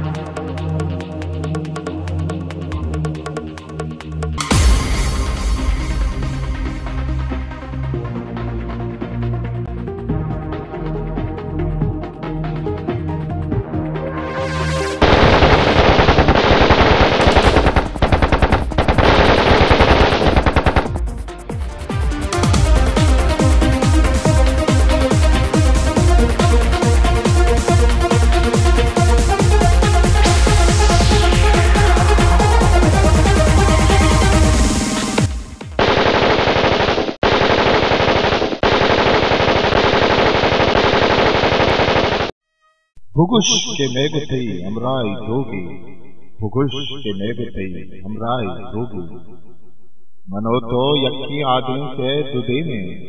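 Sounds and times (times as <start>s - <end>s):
automatic rifle fire: 15.0s - 21.0s, 35.8s - 42.3s
electronic music: 17.5s - 42.3s.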